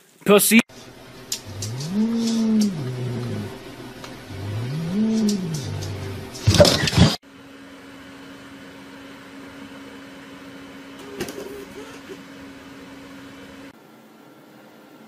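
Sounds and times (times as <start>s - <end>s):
low electrical hum: 0.7s - 15.0s.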